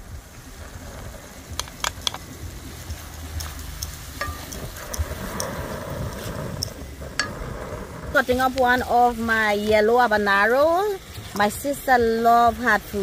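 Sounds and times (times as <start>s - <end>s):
vegetables sizzling in a pan: 0.0s - 13.0s
wooden spoon stirring: 2.8s - 7.3s.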